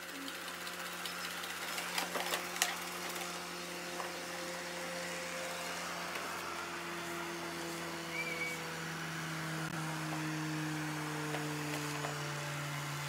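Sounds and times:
robot vacuum motor hum: 0.0s - 13.0s.

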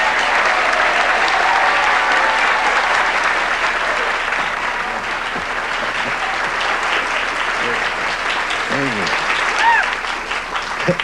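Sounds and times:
audience clapping: 0.0s - 11.0s.

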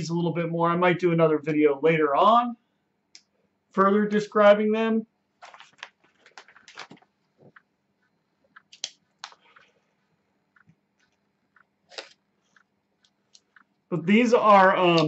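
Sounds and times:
plastic bag crinkling: 5.4s - 7.6s.

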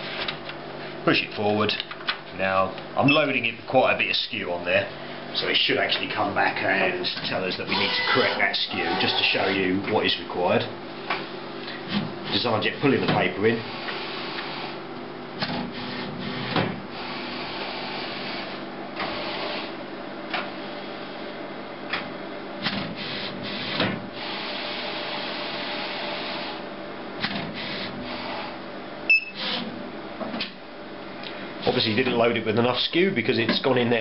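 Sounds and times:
printer rollers whirring: 7.0s - 10.0s, 15.4s - 21.2s.

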